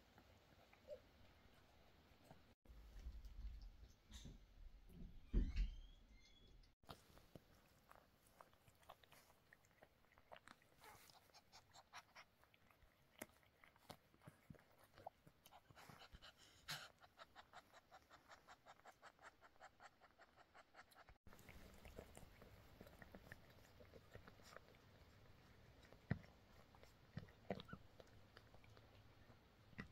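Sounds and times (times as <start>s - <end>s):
cat licking kitten: 6.8s - 29.9s.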